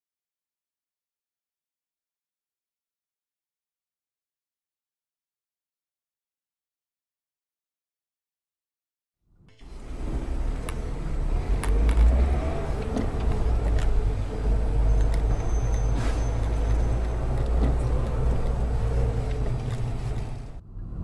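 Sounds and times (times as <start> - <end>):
road and engine rumble: 9.5 - 21.0.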